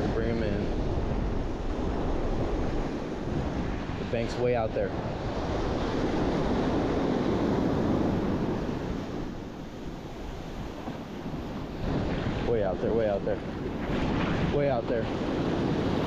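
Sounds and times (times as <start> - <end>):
surf breaking on sand: 0.0 - 16.0
wind buffeting microphone: 0.0 - 16.0.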